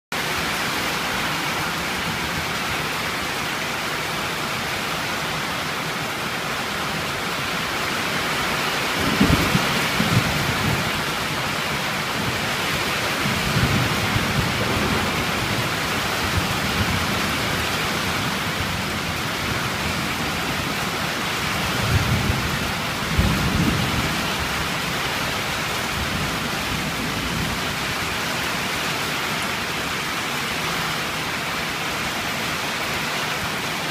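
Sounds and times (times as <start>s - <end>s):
heavy rain: 0.1s - 33.9s
thunder rumbling: 8.8s - 28.2s.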